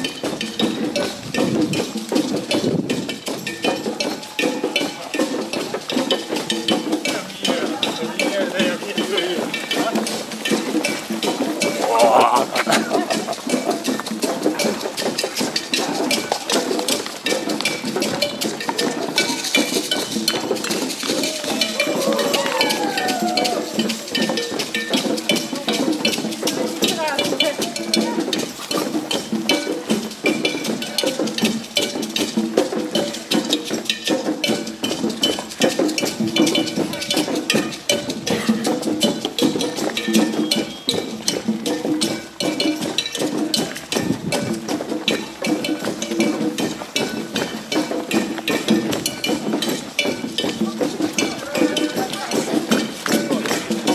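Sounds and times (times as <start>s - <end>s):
rapid knocking and clinking: 0.0s - 53.9s
murmuring voices: 0.8s - 31.7s, 49.4s - 53.9s
ringing metallic tones: 12.8s - 53.9s.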